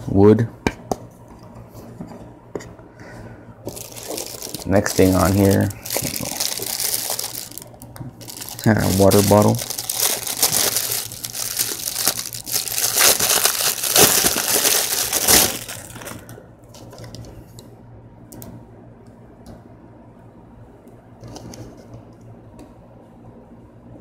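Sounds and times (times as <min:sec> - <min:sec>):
plastic shrink wrap crinkling: 0:03.7 - 0:16.4.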